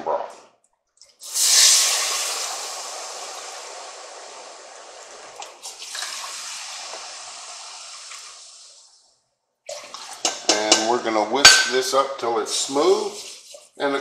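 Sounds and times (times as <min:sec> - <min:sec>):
broth sizzling in hot pot: 0:01.2 - 0:08.9
metal cup clinking against pot: 0:10.2 - 0:11.7.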